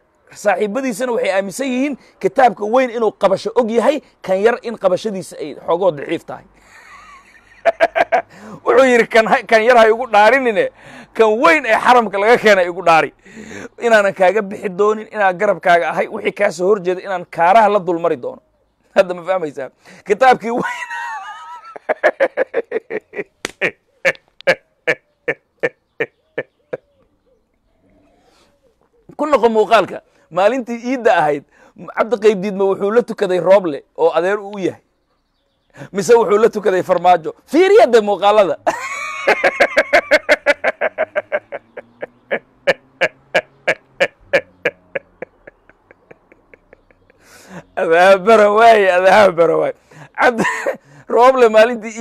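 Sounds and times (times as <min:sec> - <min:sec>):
man laughing heartily: 0:06.6 - 0:08.8, 0:20.5 - 0:26.9, 0:38.6 - 0:47.8, 0:49.9 - 0:51.1.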